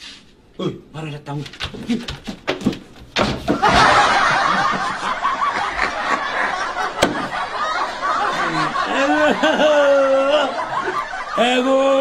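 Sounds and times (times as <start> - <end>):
crowd laughing: 3.5 - 12.0.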